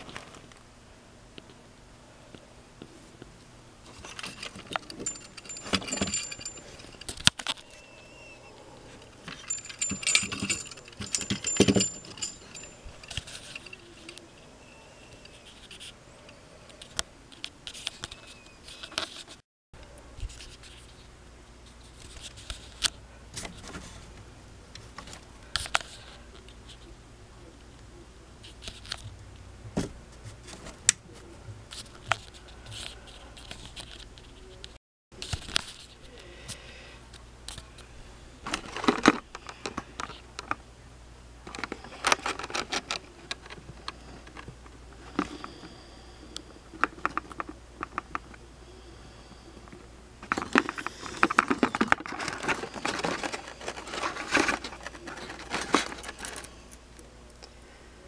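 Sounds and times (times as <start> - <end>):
mechanism clicking and rattling: 3.9 - 7.6, 9.0 - 14.2, 41.5 - 45.4, 50.2 - 56.8
small bell jingling: 4.2 - 7.1, 9.2 - 14.1.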